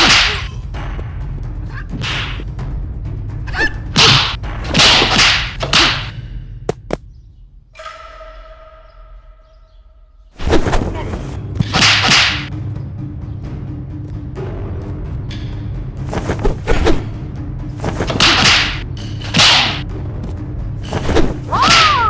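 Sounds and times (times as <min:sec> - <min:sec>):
sharp snaps: 0:11.6 - 0:12.5, 0:17.8 - 0:22.0
high-pitched fighting cry: 0:21.5 - 0:22.0.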